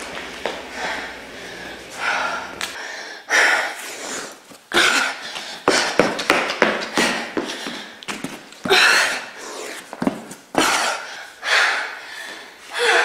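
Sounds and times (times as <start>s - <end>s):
woman breathing hard: 0.7s - 6.2s, 6.8s - 9.9s, 10.5s - 13.0s
hands and feet thudding on floor: 9.8s - 10.8s.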